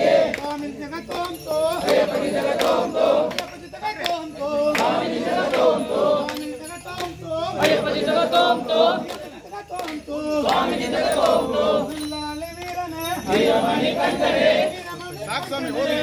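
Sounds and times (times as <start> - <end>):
men chanting together: 0.0 - 12.0, 13.1 - 15.0, 15.6 - 16.0.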